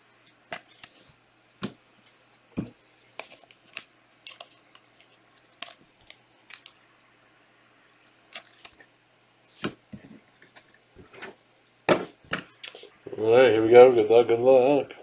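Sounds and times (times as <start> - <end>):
foil wrappers crinkling: 3.2 - 6.8.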